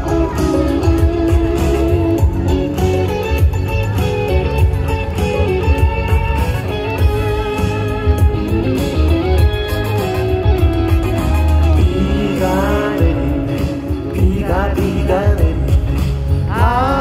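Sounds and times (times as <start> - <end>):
guitar: 0.0 - 17.0
live band music through speakers: 0.0 - 17.0
person singing: 11.8 - 17.0.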